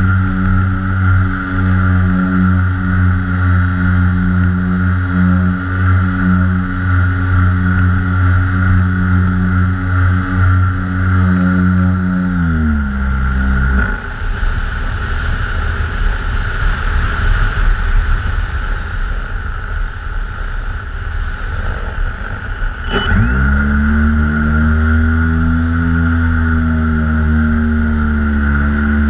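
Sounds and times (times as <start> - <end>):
wind rush on microphone: 0.0 - 29.0
electric motors whining: 21.6 - 29.0.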